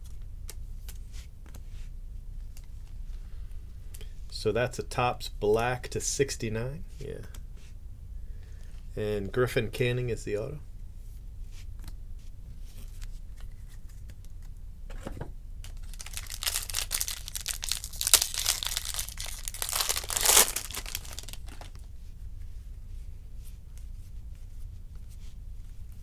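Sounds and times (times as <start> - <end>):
cards being handled: 12.6 - 14.6, 15.6 - 21.8
foil wrapper tearing and crinkling: 15.7 - 21.8.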